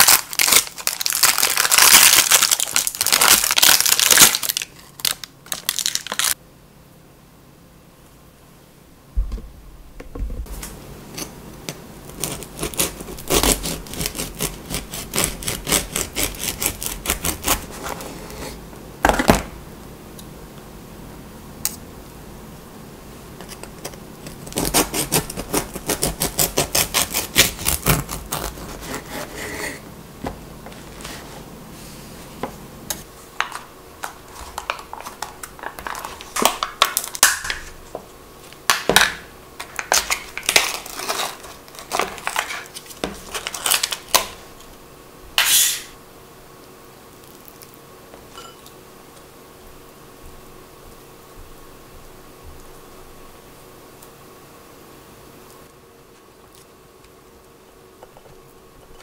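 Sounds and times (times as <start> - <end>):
knife sawing through bread: 12.2 - 18.6, 24.4 - 29.8.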